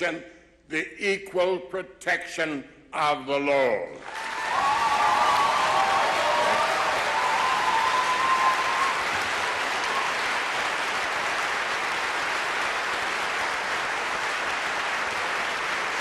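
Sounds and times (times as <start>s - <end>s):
audience applauding: 4.0s - 16.0s.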